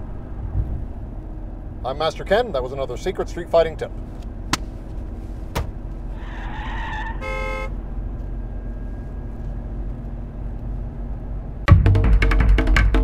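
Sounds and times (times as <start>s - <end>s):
car driving rumble: 0.0s - 12.2s
music: 11.7s - 13.0s.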